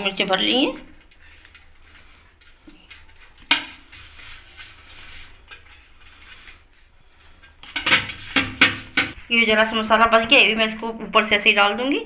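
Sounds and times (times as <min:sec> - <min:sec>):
hands rubbing and handling: 0:01.0 - 0:09.2.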